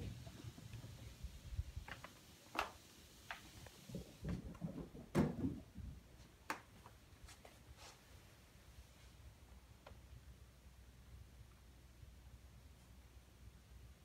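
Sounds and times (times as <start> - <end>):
clicks and knocks on hardwood floor: 1.8 - 7.0.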